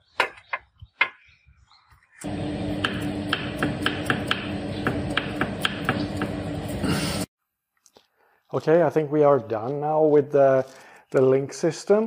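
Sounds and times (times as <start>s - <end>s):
steady hum: 2.2s - 7.3s.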